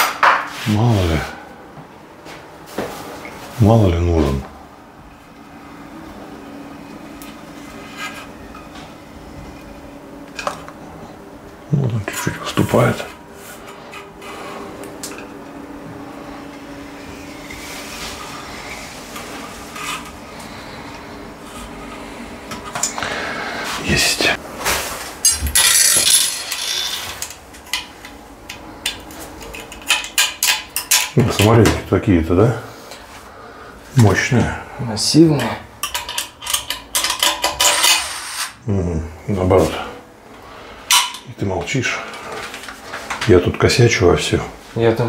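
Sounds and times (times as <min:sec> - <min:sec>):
steady low hum: 0:00.0 - 0:45.0
metal profile scraping: 0:24.6 - 0:27.4.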